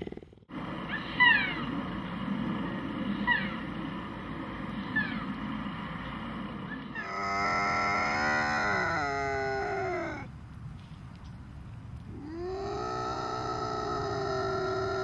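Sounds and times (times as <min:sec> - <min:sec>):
bobcat yowling: 0:00.8 - 0:01.8, 0:03.1 - 0:03.8, 0:04.8 - 0:05.4, 0:06.7 - 0:10.3.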